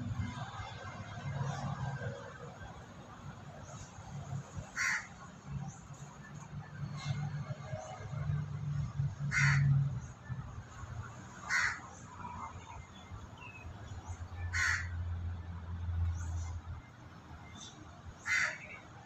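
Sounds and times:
crow cawing: 0:04.8 - 0:05.1, 0:09.3 - 0:09.7, 0:11.5 - 0:11.8, 0:14.5 - 0:14.9, 0:18.2 - 0:18.7.

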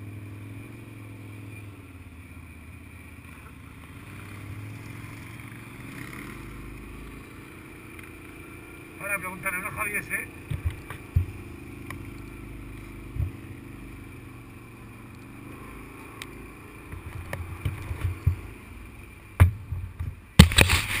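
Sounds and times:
quad bike engine running: 0:00.0 - 0:21.0
irregular thumps: 0:10.4 - 0:12.1, 0:13.1 - 0:13.6, 0:16.9 - 0:18.6, 0:19.3 - 0:21.0.

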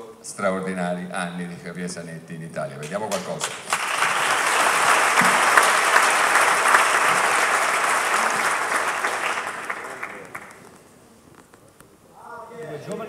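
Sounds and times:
audience applauding: 0:03.1 - 0:10.8.

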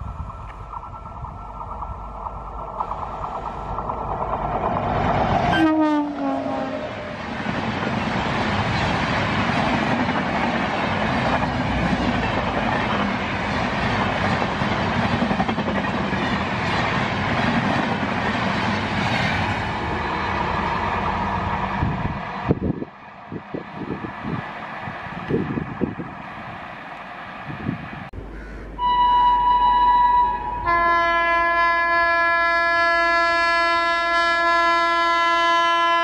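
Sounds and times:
train coaches rushing by: 0:00.0 - 0:28.2
locomotive horn: 0:05.5 - 0:07.2, 0:28.8 - 0:36.0.

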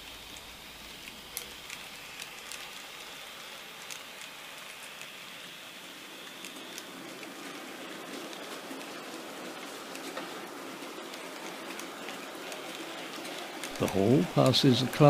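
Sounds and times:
model train wheels hissing on rail: 0:00.0 - 0:15.0
light track clicks: 0:00.2 - 0:15.0.

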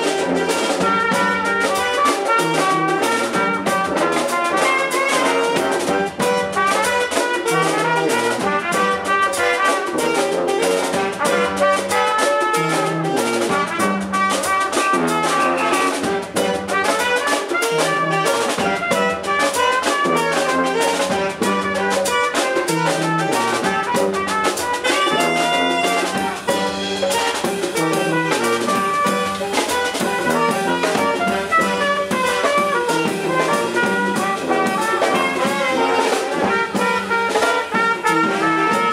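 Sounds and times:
brass band playing: 0:00.0 - 0:38.9.

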